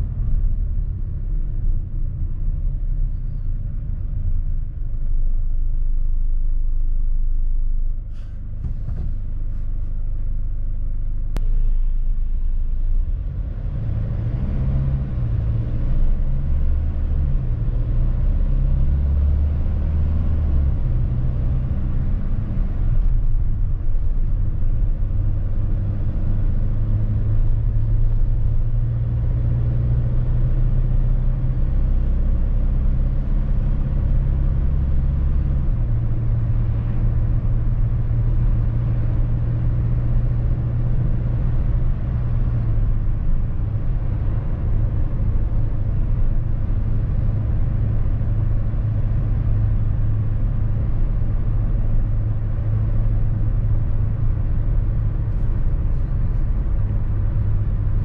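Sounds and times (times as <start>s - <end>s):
road noise: 0.0s - 58.0s
van engine drone: 0.0s - 58.0s.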